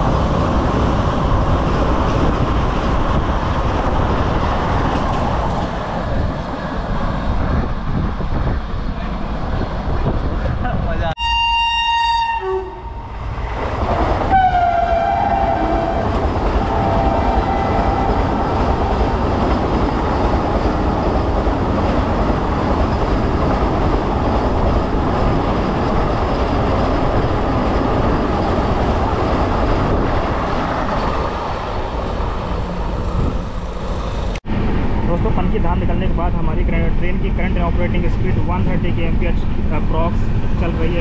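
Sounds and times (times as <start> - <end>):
clickety-clack of train wheels: 0.0 - 6.6, 13.6 - 31.4
train wheels rushing on rails: 0.0 - 11.1, 12.9 - 41.0
train horn: 11.2 - 13.1, 14.3 - 18.2.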